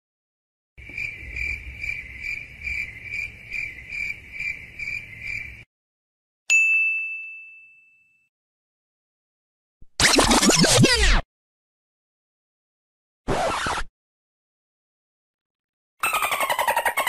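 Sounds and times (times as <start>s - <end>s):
cricket chirping: 0.8s - 5.7s
bright ding ringing: 6.5s - 8.3s.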